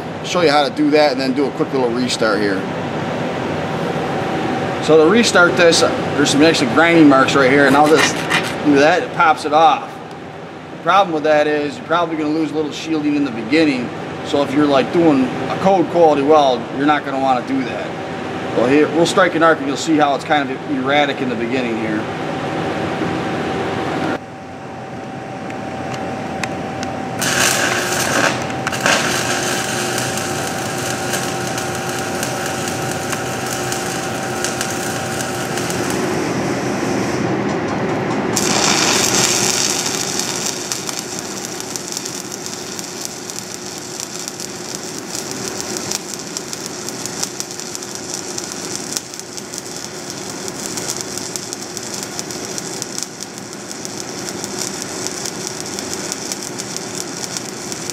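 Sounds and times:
welding arc crackling and hissing: 4.8s - 9.7s, 27.2s - 37.2s, 38.4s - 57.9s.

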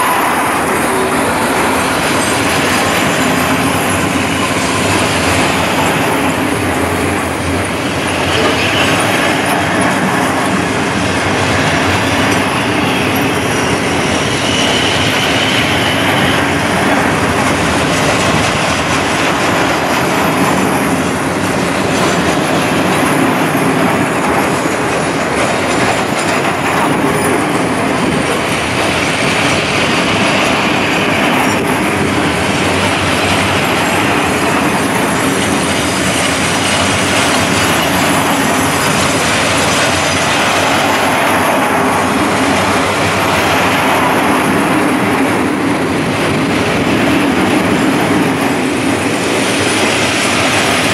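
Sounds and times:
high wheel squeal: 0.0s - 9.8s, 11.7s - 17.3s
freight train wheels rumbling: 0.0s - 50.9s.

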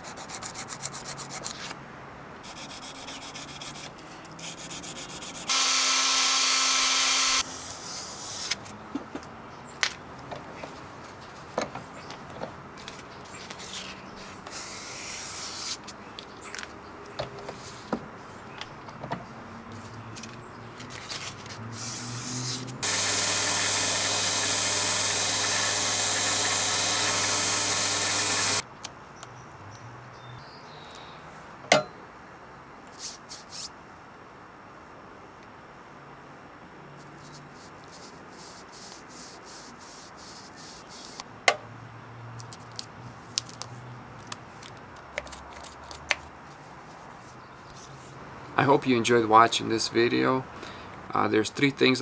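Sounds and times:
belt sander running: 5.5s - 7.4s, 22.8s - 28.6s.

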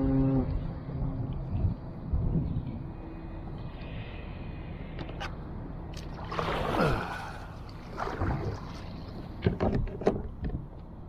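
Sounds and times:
water splashing against kayak hull: 6.0s - 10.5s.

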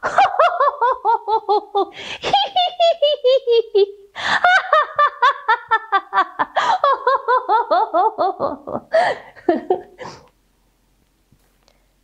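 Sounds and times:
woman laughing like a hyena: 0.0s - 10.2s
breathy gasp: 10.0s - 10.3s.

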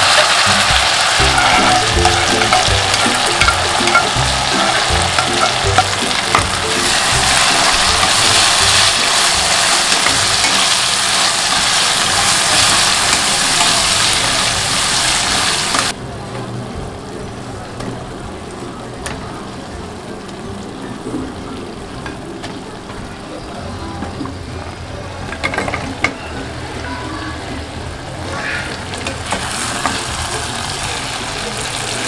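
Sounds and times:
masala sizzling in hot oil: 0.0s - 16.0s, 27.7s - 32.0s
spatula scraping pan: 1.2s - 14.2s.

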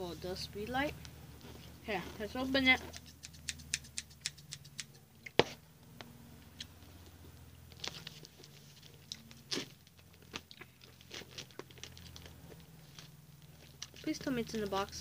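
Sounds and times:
cardboard crackling: 7.7s - 15.0s.

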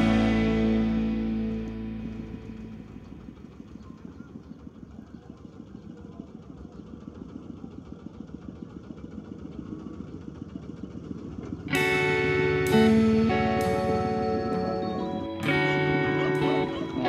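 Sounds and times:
small engine idling: 0.0s - 17.0s.

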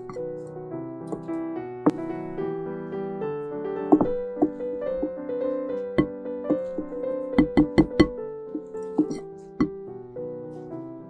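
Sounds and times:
piano music: 0.0s - 11.0s
spoon knocking glass bowl: 6.5s - 8.1s, 9.0s - 9.2s.

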